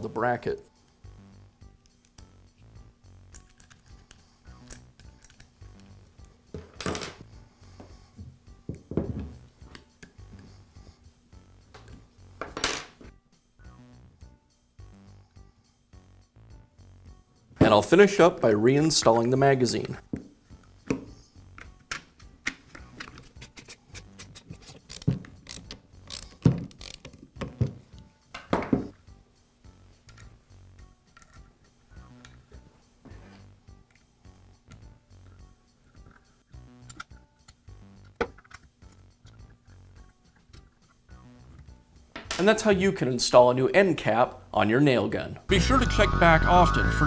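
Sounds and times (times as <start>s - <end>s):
soft background music: 0.0s - 47.0s
hand screwdriver screwing: 21.6s - 27.7s.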